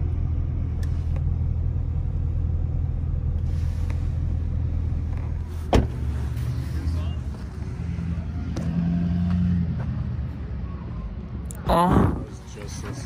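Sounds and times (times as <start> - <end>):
car engine and road noise: 0.0 - 13.0
sharp thump: 5.7 - 6.0.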